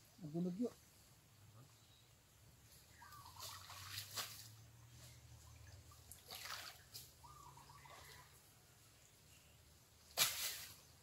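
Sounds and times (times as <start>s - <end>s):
wading through shallow water: 2.9s - 8.4s.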